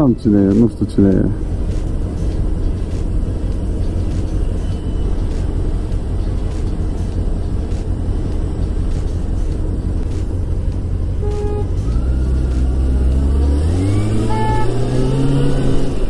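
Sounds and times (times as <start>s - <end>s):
scooter engine rumble: 0.0s - 13.0s.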